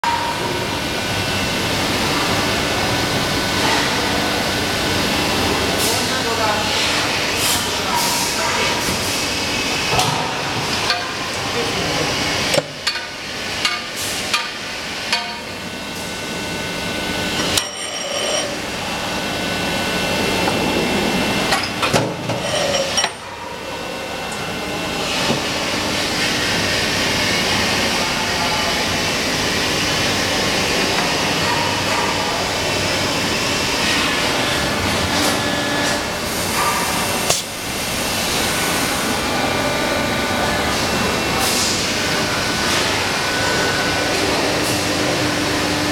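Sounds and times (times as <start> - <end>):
steady machine noise: 0.0 - 45.9.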